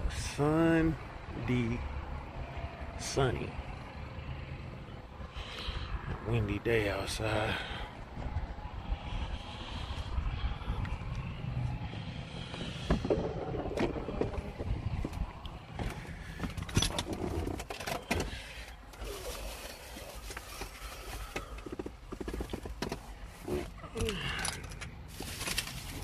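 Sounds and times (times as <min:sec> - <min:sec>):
wind buffeting microphone: 0:03.6 - 0:17.6.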